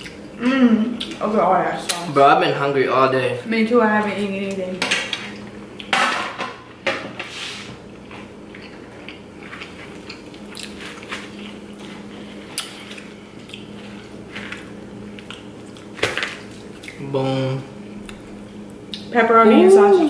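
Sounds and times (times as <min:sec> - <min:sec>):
low steady hum: 0:00.0 - 0:20.0
biting and chewing: 0:08.5 - 0:17.0.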